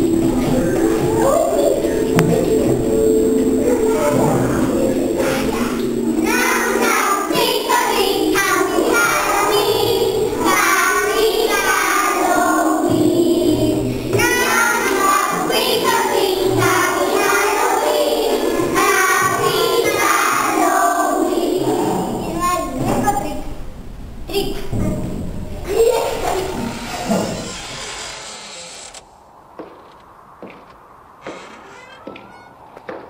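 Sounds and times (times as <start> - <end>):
children singing: 0.0 - 23.0
music backing: 0.0 - 27.7, 31.6 - 32.8.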